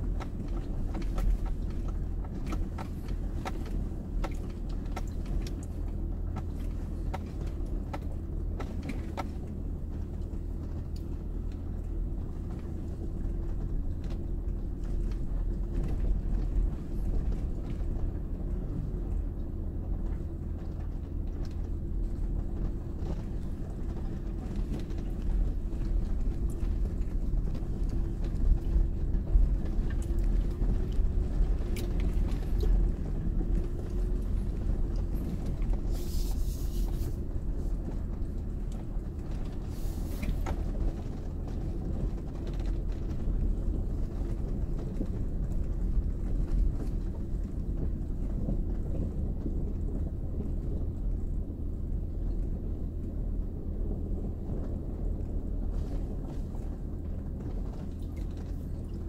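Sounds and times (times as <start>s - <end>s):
knocks and rattles over bumps: 0.0s - 36.0s
engine and tyre rumble: 0.0s - 59.0s
short hiss: 35.9s - 37.2s.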